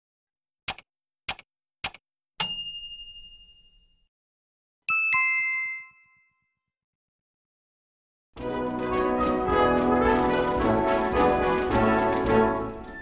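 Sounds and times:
bell-like ding: 2.4 - 4.1, 4.9 - 6.6.

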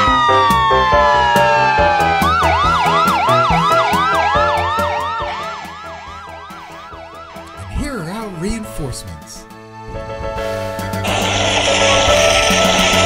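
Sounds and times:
fast yelp siren: 0.0 - 7.5
slow wailing siren: 0.0 - 7.6, 11.0 - 13.0
background music with beat: 0.0 - 8.2.

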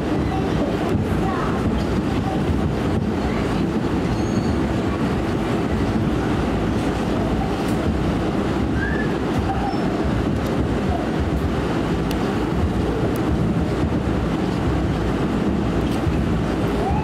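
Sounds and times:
subway wheels on rail: 0.0 - 17.0
faint brief squeaks: 4.1 - 4.6.

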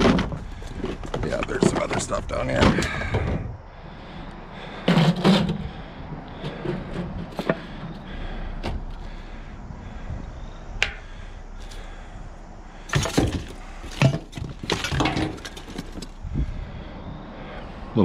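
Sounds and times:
thumps of trash: 0.0 - 3.5, 12.9 - 16.2
cardboard and plastic rustling: 12.9 - 16.2.

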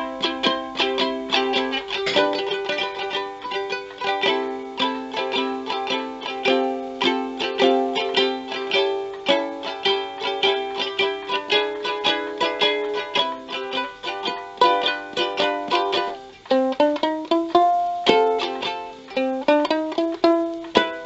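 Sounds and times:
ukulele chord strumming: 0.0 - 21.0
ukulele plucked notes: 0.0 - 21.0.

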